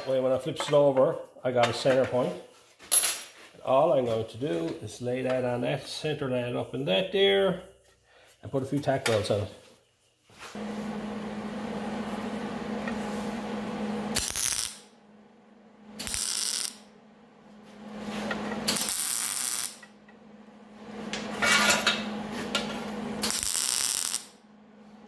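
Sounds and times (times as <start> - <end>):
steady low hum: 10.6 - 16.2, 16.8 - 18.9
welding bursts: 14.1 - 14.9, 16.0 - 16.9, 18.6 - 19.9, 23.2 - 24.4.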